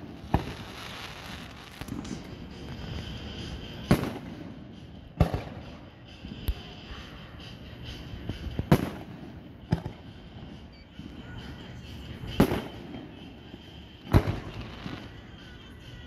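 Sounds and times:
firework bangs: 0.0 - 5.8, 8.3 - 11.4, 12.3 - 15.2.

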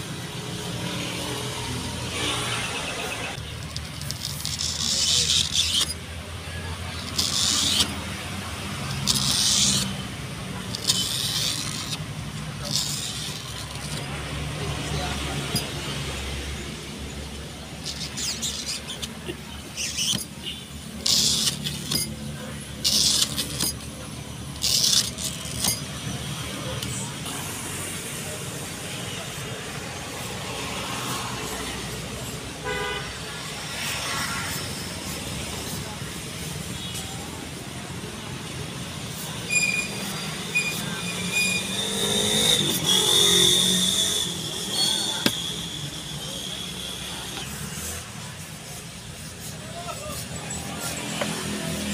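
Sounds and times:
traffic engine hum: 0.0 - 51.9
short high squeaks: 0.5 - 14.1, 17.3 - 27.1, 38.5 - 51.5.

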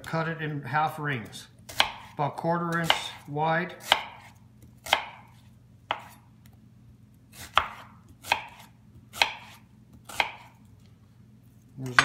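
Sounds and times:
knife slicing onion: 1.2 - 6.5, 7.3 - 10.7.

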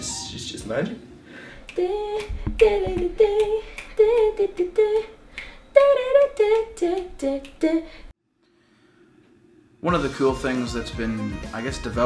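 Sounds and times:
woman singing wordlessly: 1.6 - 8.1.

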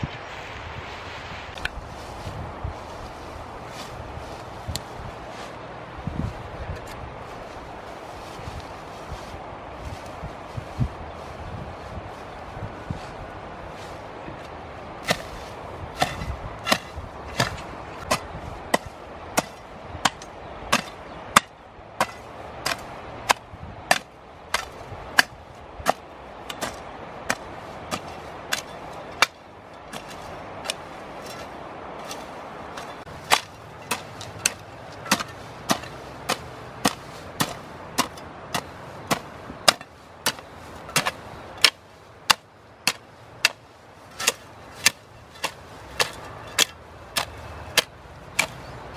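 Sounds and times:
hand tool chopping soil: 15.0 - 48.9.

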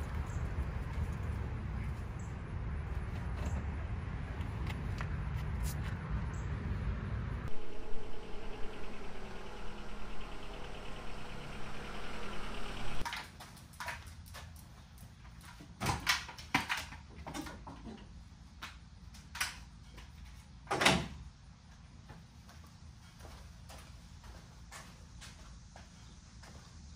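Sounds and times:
car driving slowly: 0.0 - 13.0.

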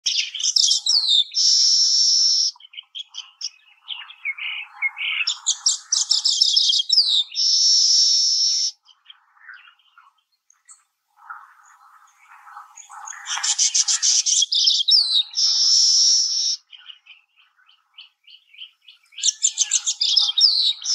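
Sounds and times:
bird chattering song with buzzy wheeze: 10.7 - 16.6, 19.2 - 20.9.

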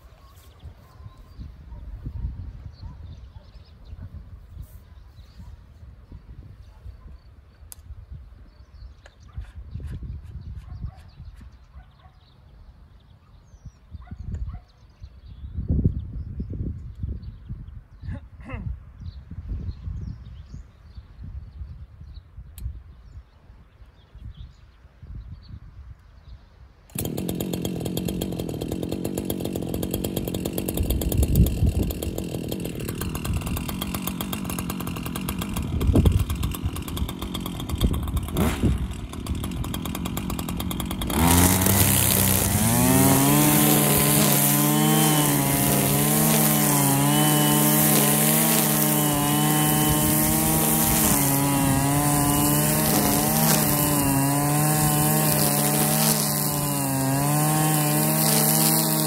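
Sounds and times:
brushcutter engine running: 26.9 - 59.0
trimmer line cutting grass: 26.9 - 59.0.

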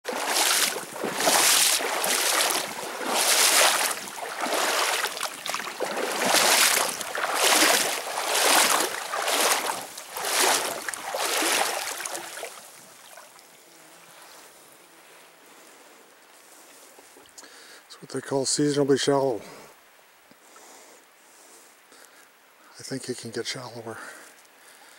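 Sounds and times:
paddle swishing water: 0.0 - 13.4.

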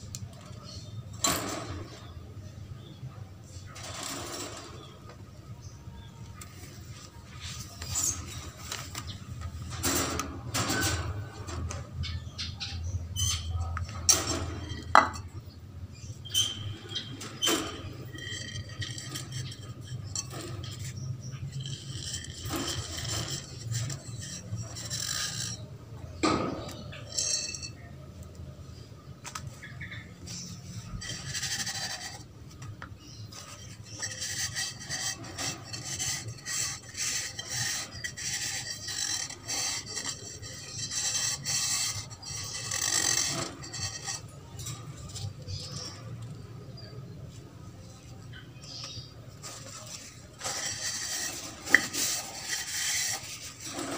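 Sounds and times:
wire cage clinking and rattling: 3.8 - 5.0, 7.9 - 12.2, 13.2 - 15.4, 16.3 - 27.8, 33.3 - 46.6
scratchy rubbing: 6.5 - 27.8, 29.6 - 53.9.

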